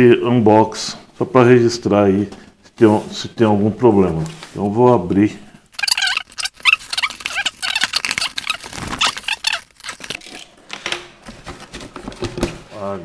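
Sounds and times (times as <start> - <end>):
packing tape ripping: 5.8 - 10.4
box flaps rustling: 6.5 - 10.2
cardboard scraping and knocking: 8.0 - 9.2, 11.2 - 12.8.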